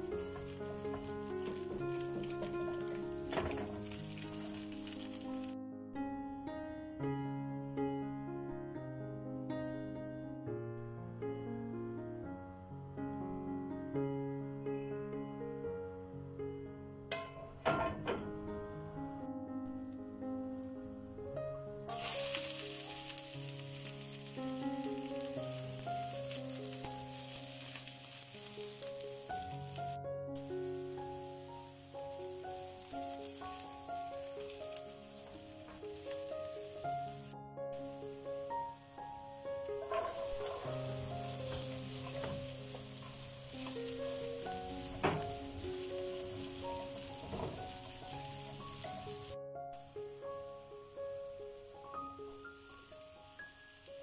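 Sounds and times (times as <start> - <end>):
onions sizzling in hot oil: 0.0 - 5.6, 21.8 - 54.0
background music with held notes: 0.0 - 54.0
utensil knocking against pan: 17.1 - 18.4, 44.9 - 45.5.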